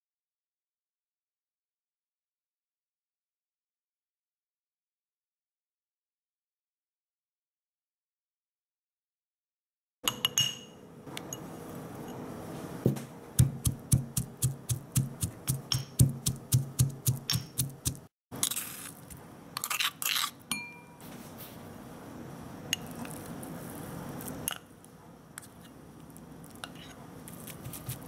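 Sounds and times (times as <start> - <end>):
pestle pounding in mortar: 13.4 - 18.1.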